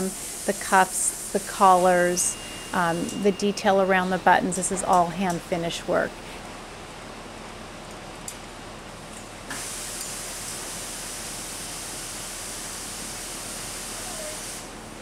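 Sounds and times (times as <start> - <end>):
steam hissing: 0.0 - 3.9, 9.5 - 15.0.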